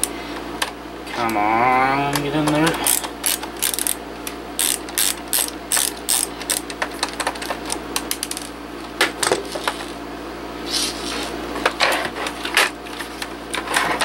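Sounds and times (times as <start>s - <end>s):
ratchet screwdriver clicking: 2.8s - 4.0s, 4.6s - 6.7s.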